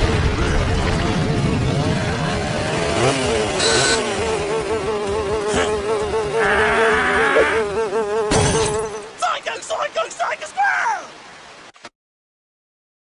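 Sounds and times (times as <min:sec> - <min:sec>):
cartoon fly buzzing: 0:03.0 - 0:09.2.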